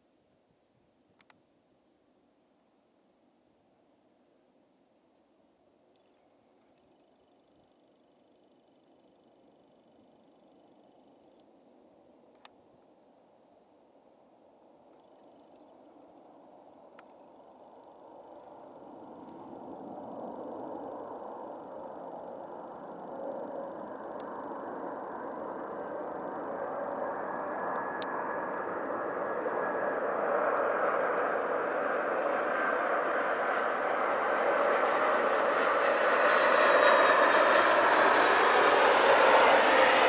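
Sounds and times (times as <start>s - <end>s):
jet engines rushing: 16.6s - 40.0s.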